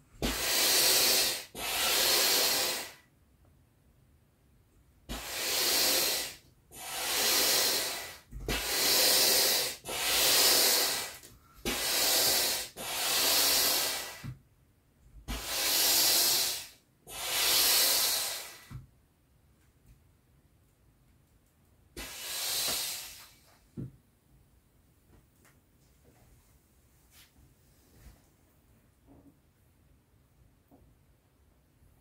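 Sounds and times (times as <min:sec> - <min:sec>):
hand air pump strokes: 0:00.2 - 0:02.9, 0:05.1 - 0:14.3, 0:15.3 - 0:18.7.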